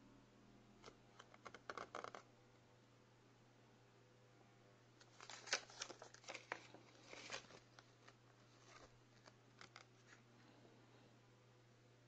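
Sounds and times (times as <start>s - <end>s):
paper leaflet crinkling: 5.0s - 10.2s.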